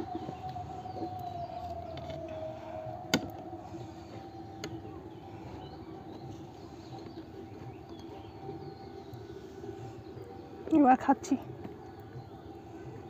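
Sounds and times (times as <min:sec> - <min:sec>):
faint hum: 0:00.0 - 0:13.0.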